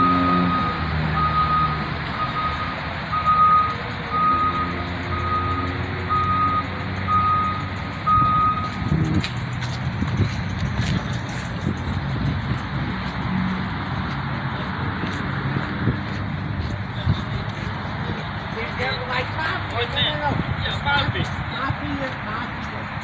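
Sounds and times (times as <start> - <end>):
vehicle backup alarm beeping: 0.0 - 9.2
low engine rumble: 0.0 - 23.0.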